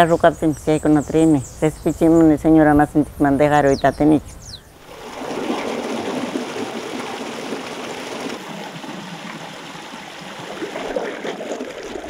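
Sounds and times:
stream running over rocks: 4.8s - 12.0s.

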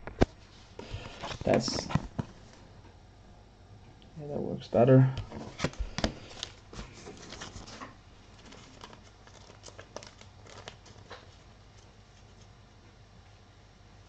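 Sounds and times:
trading cards clicking and rustling: 5.2s - 12.0s.

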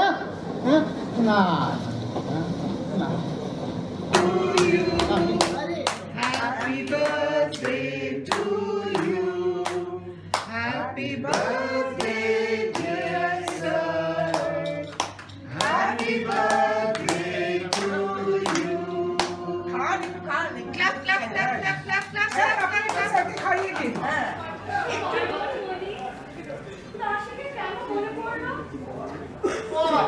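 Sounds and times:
group singing a celebration song: 3.7s - 20.8s
hands clapping in time: 14.4s - 15.8s.

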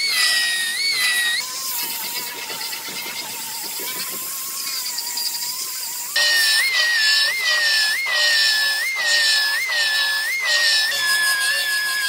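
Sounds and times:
belt sander sanding: 0.0s - 12.0s
die grinder whining: 0.0s - 12.0s.

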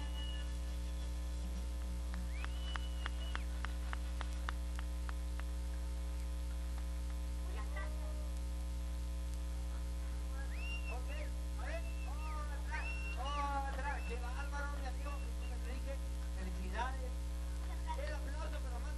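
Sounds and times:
electrical mains hum: 0.0s - 18.9s.

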